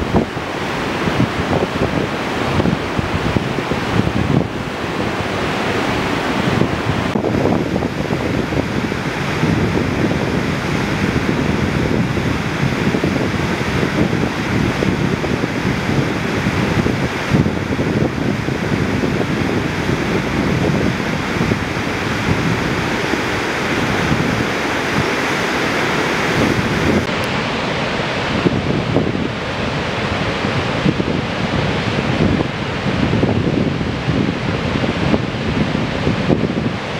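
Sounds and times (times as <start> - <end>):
whitewater rushing: 0.0 - 36.9.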